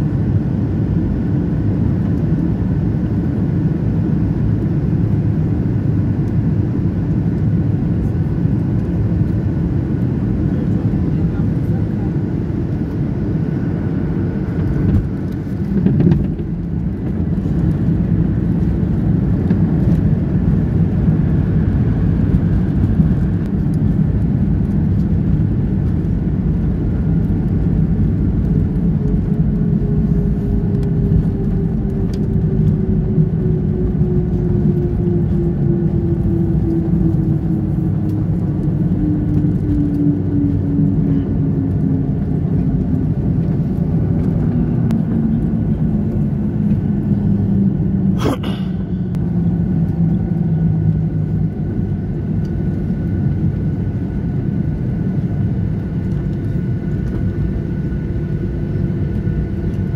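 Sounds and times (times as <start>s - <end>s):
engine and propeller rumble: 0.0s - 59.9s.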